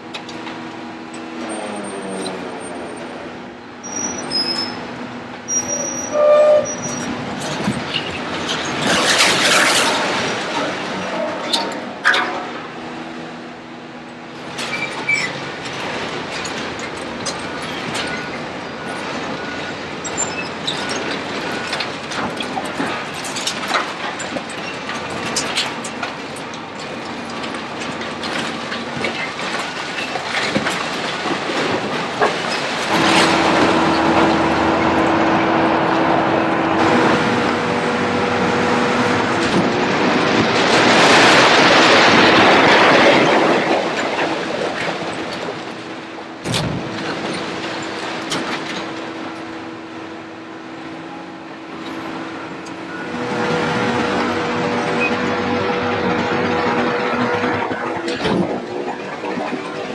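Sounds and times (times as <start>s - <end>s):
heavy machinery engines: 0.0s - 59.9s
concrete cracking and clattering down: 7.4s - 12.5s, 20.0s - 34.2s, 39.4s - 49.2s
steady engine drone: 30.6s - 59.9s.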